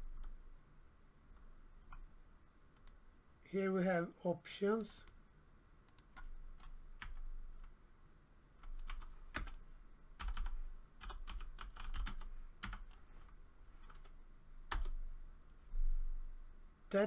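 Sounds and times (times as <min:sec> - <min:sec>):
keyboard typing clicks: 0:02.8 - 0:03.0, 0:05.9 - 0:07.7, 0:10.2 - 0:13.0.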